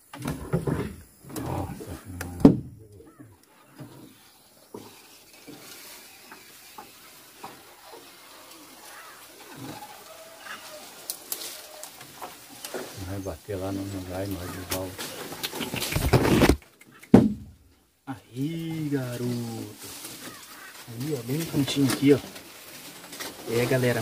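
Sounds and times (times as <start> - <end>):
bird calls: 1.4 - 24.0
sharp knock: 15.9 - 17.5.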